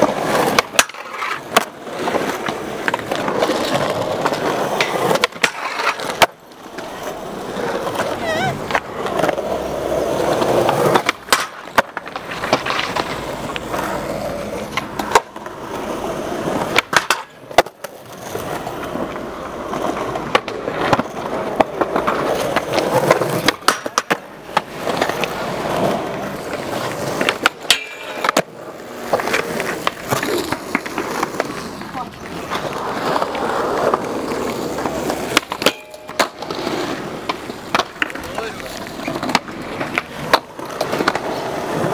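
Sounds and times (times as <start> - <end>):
skateboard wheels rolling on concrete: 0.0 - 41.9
skateboards clacking on ground: 0.0 - 41.9.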